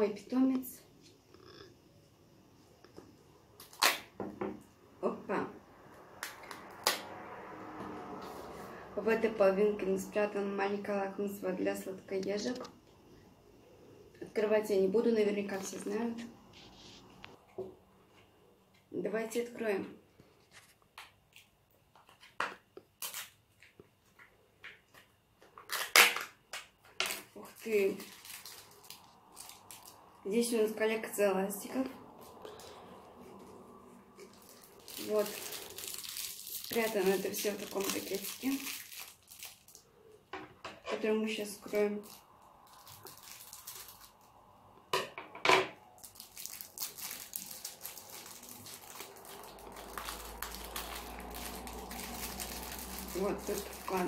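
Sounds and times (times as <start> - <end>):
plastic and paper crinkling: 26.8 - 30.0, 34.2 - 39.9, 41.4 - 44.3, 46.0 - 54.0.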